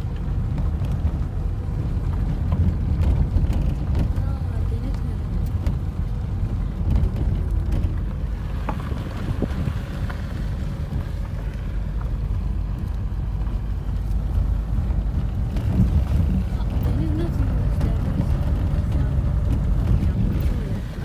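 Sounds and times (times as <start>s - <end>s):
car driving on gravel: 0.0s - 21.0s
wind noise: 0.0s - 21.0s.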